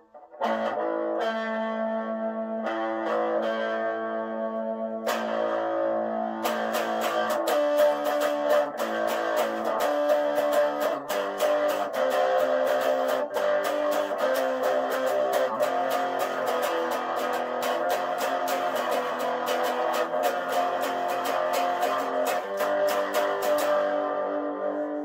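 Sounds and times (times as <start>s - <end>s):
electric guitar playing chords: 0.0s - 25.0s.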